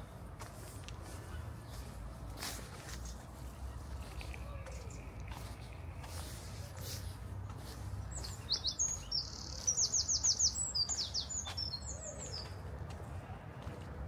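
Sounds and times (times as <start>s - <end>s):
songbird singing: 3.4s - 6.7s, 7.4s - 12.7s.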